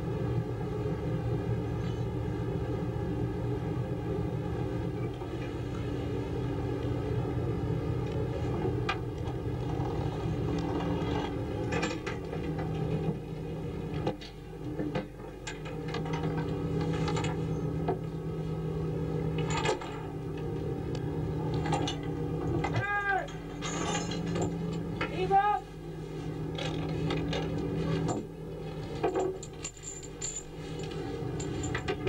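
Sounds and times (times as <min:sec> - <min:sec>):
boat engine and winch humming: 0:00.0 - 0:32.0
metal chain clanking: 0:19.4 - 0:20.2, 0:21.6 - 0:25.0, 0:28.9 - 0:32.0.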